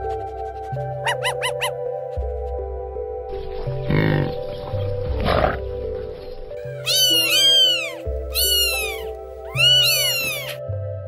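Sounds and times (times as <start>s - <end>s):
background music with bass line: 0.0s - 9.8s
drawn-out animal calls: 6.6s - 10.6s.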